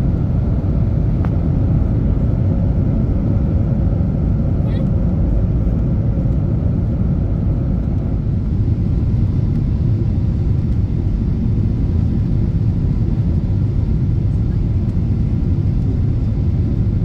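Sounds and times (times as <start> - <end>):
aircraft cabin engine rumble: 0.0 - 17.0.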